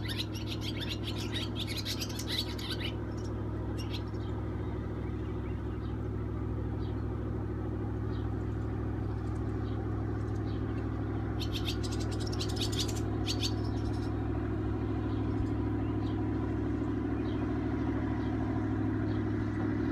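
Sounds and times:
bird chirps: 0.0s - 6.0s, 9.6s - 14.2s
motorboat engine droning: 0.0s - 19.9s.

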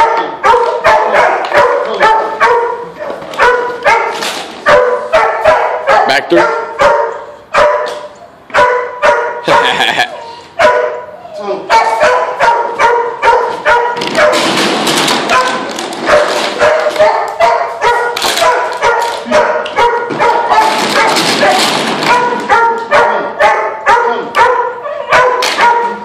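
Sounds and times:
dog barking: 0.0s - 14.6s, 15.2s - 26.0s
plastic bottles clattering on floor: 4.1s - 4.6s, 14.0s - 17.1s, 18.1s - 22.5s.

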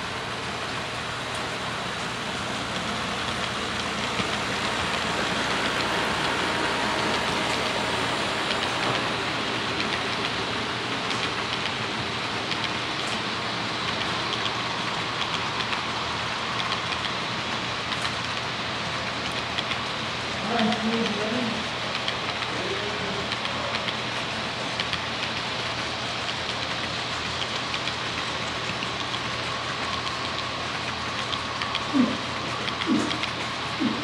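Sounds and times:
model train wheels rushing on rails: 0.0s - 34.0s.

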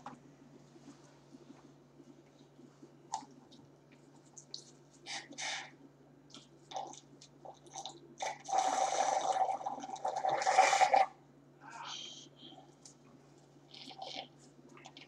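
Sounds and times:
gurgling straw slurp: 6.7s - 11.1s.

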